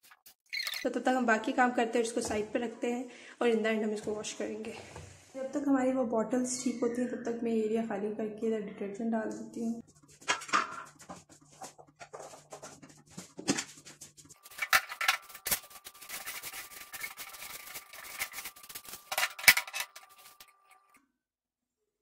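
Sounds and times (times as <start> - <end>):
metal stove parts clicking and scraping: 14.3 - 20.9.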